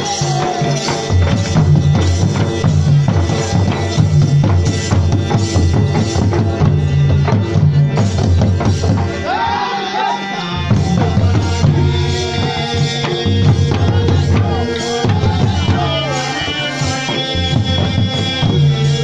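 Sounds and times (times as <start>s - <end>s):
barrel drums beaten fast: 0.0s - 9.5s, 10.7s - 19.0s
folk melody sung or played: 9.0s - 19.0s.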